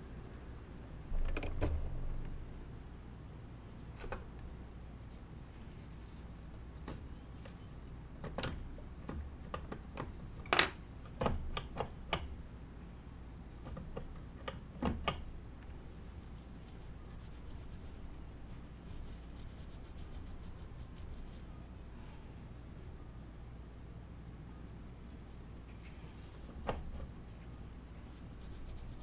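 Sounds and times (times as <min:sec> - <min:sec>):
faint fast scratching: 0:16.0 - 0:22.6, 0:25.0 - 0:29.0.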